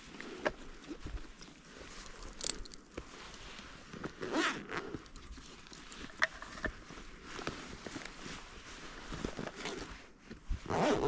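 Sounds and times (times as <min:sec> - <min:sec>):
buckles clicking: 0:00.4 - 0:03.4, 0:04.0 - 0:06.8
fabric rustling: 0:00.7 - 0:11.0.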